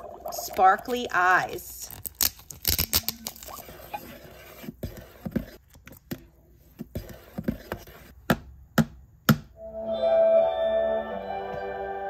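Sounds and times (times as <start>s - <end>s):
plastic vial peeled open: 1.9s - 3.9s.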